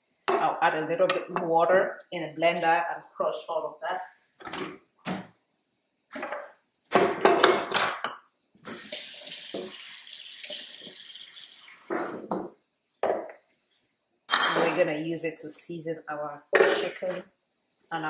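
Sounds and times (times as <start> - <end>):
faucet running water into jar: 8.7 - 11.9.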